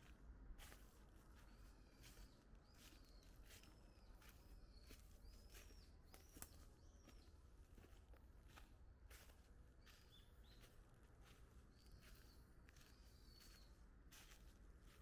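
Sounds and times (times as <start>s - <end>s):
bird chirping: 1.9s - 7.9s, 9.8s - 10.8s, 11.7s - 13.8s
footsteps crunching dry leaves: 8.5s - 15.0s.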